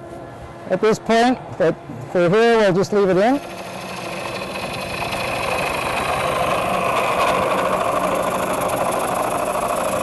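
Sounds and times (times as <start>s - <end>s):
lathe motor hum: 2.8s - 10.0s
gouge cutting spinning wood: 3.2s - 10.0s.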